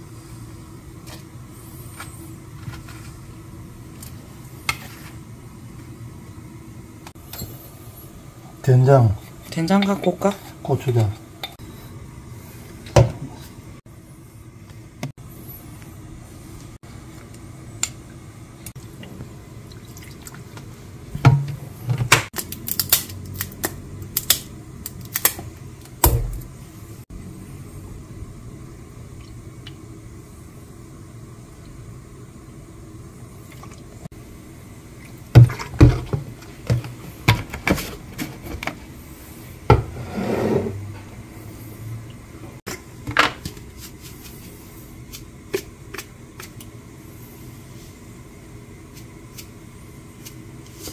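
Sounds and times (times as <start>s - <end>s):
wooden spoon scraping ceramic bowl: 39.7s - 41.0s.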